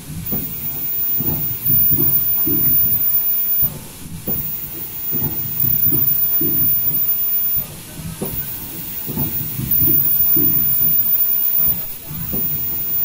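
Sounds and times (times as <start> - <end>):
machine high-pitched whine: 0.0 - 13.0
machine low rumble: 0.0 - 13.0.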